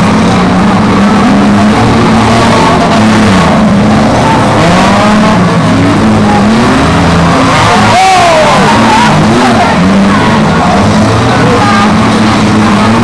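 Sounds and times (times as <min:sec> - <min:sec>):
car engines revving hard: 0:00.0 - 0:13.0.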